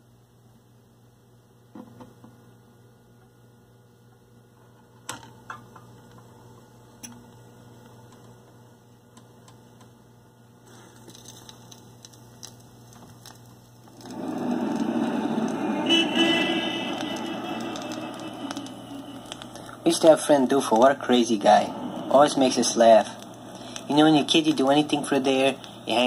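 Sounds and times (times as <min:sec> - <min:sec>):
faint steady hum: 0:00.0 - 0:26.0
record clicks and pops: 0:10.9 - 0:21.0.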